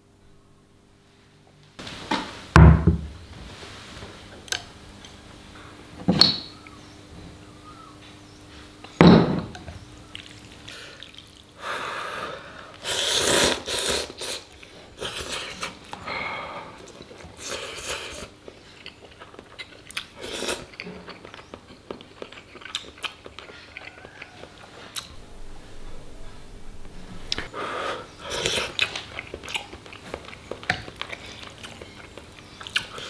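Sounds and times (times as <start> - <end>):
chewing: 10.1 - 11.5, 16.8 - 25.2, 28.2 - 33.0
person slurping noodles: 12.8 - 15.8.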